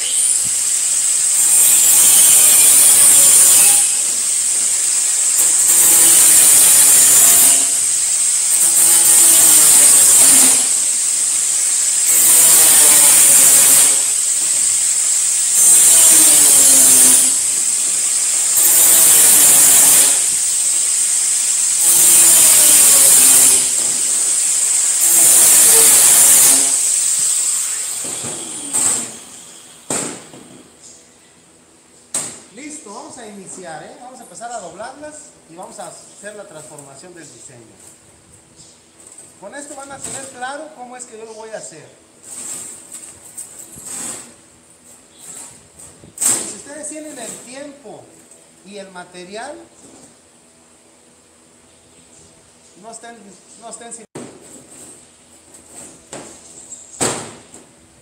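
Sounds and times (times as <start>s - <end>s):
angle grinder cutting sheet metal: 0.0s - 29.8s.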